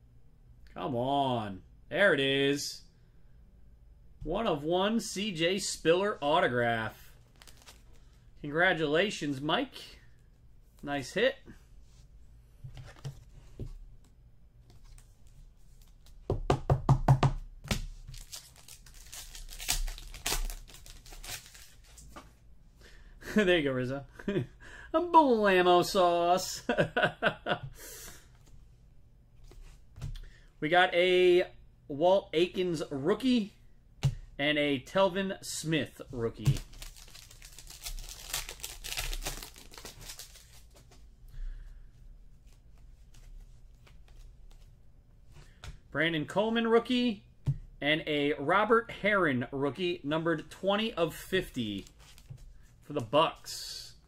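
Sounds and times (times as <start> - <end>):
cards sliding and rustling: 7.2 - 8.1, 17.8 - 22.4, 36.5 - 41.1, 51.8 - 52.6
foil wrapper crinkling and tearing: 7.3 - 7.8, 18.1 - 22.0, 36.5 - 40.7
card pack knocking on desk: 16.3 - 17.8.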